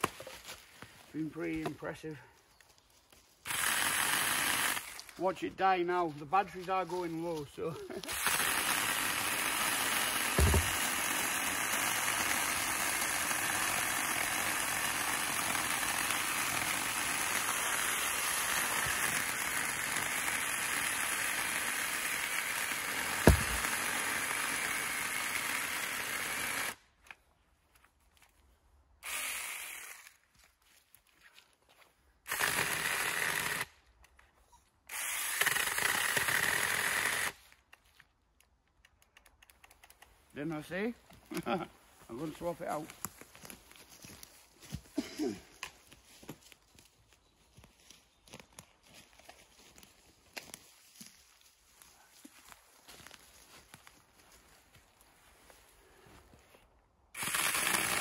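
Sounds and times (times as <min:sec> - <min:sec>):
chainsaw cutting log: 0:03.4 - 0:05.2, 0:08.0 - 0:26.8, 0:29.0 - 0:30.2, 0:32.2 - 0:33.7, 0:34.9 - 0:37.4, 0:57.2 - 0:58.0
sharp knocks: 0:10.4 - 0:10.8, 0:23.2 - 0:23.8.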